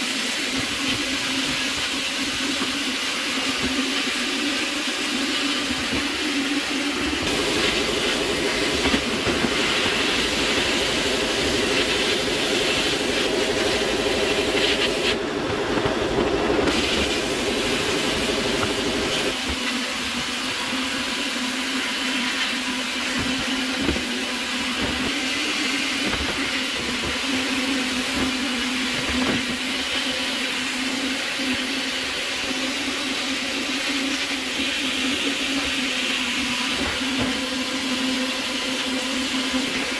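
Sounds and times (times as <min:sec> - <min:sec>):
hissing air and water jet: 0:00.0 - 0:39.9
constant low hum: 0:07.2 - 0:19.7.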